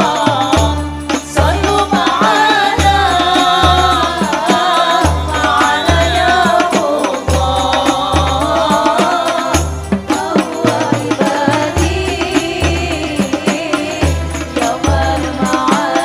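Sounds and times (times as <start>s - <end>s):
person singing: 0.0s - 16.0s.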